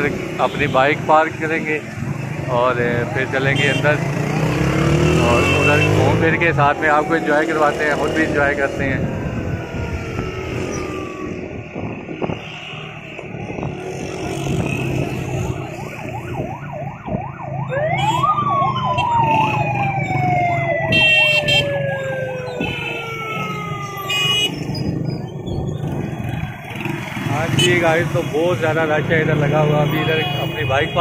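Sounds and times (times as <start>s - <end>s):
street traffic: 0.0s - 31.0s
siren warbling and wailing: 4.4s - 27.0s.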